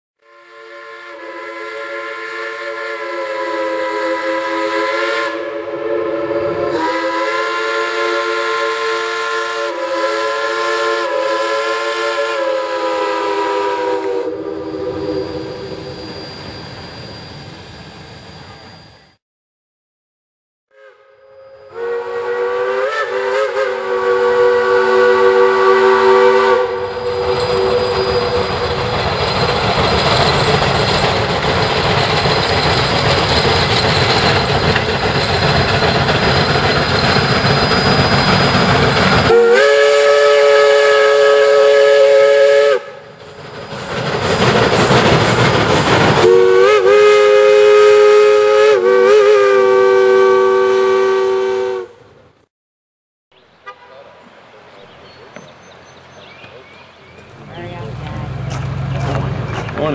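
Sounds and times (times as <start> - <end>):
multi-tone steam whistle: 0.2 - 19.2, 20.7 - 29.4, 35.8 - 43.2, 46.1 - 52.2
steam exhaust: 0.2 - 19.2, 20.7 - 52.2
locomotive running noise: 25.4 - 48.2, 53.8 - 59.9.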